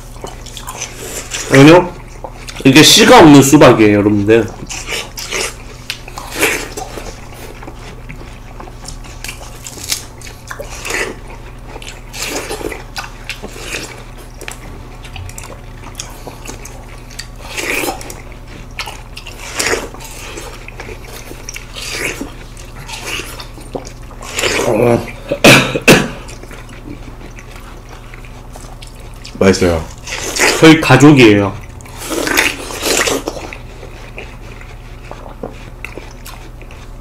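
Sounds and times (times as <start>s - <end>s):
biting and chewing watermelon: 0.0s - 37.0s
low hum: 13.9s - 19.2s.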